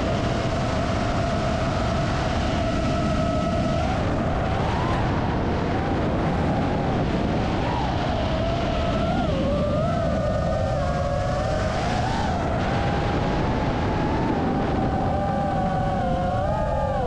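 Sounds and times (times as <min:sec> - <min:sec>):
rush of wind: 0:00.0 - 0:17.0.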